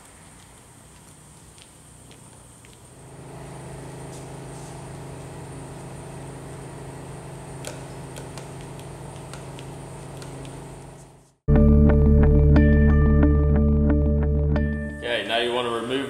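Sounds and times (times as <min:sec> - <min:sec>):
low machine hum: 0:00.0 - 0:11.3.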